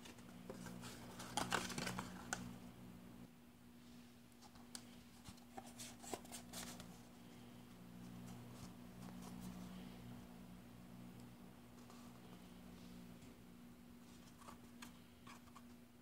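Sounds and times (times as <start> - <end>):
paper crinkling and clicking: 0.0 - 2.5
low steady hum: 0.0 - 16.0.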